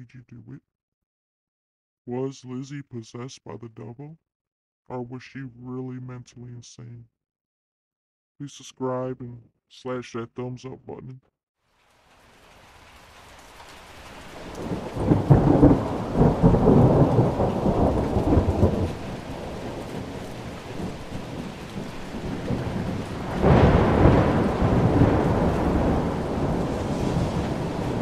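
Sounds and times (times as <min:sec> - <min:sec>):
steady rain: 0:11.7 - 0:28.0
thunder rolling: 0:14.4 - 0:28.0.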